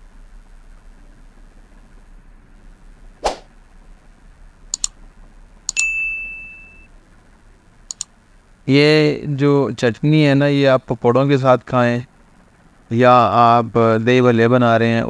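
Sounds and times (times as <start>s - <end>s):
mouse clicks: 4.7s - 5.0s
bell ding: 5.7s - 6.9s.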